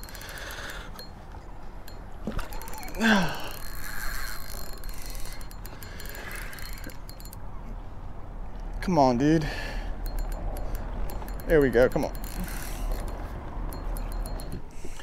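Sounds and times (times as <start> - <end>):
fishing reel clicking: 0.0 - 1.2, 1.8 - 7.4, 10.0 - 14.6.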